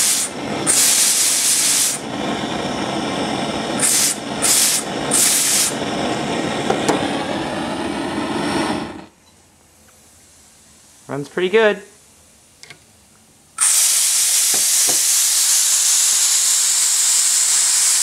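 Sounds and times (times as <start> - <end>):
steam hissing from valve: 0.0 - 9.1, 13.6 - 18.0.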